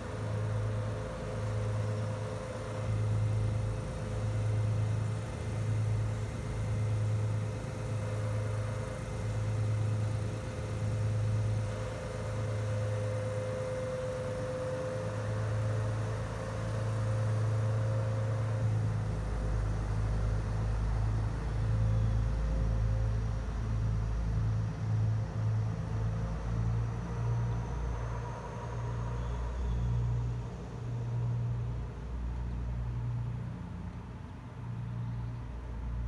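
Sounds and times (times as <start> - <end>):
diesel train engine humming: 0.0 - 36.0
train pulling away rumble: 5.7 - 34.0.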